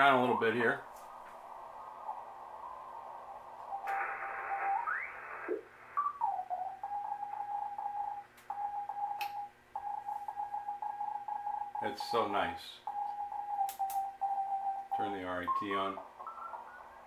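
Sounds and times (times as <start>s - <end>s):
radio band hiss: 0.0s - 6.2s
radio whistle gliding: 1.7s - 7.2s
morse code tone: 6.8s - 16.9s.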